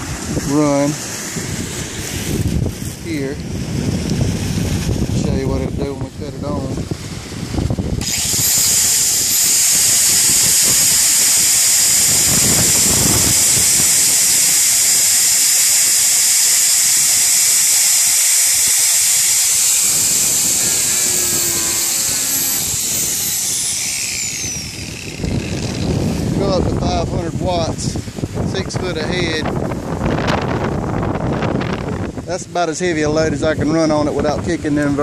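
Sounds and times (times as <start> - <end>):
electric grinder whining: 8.0 - 26.5.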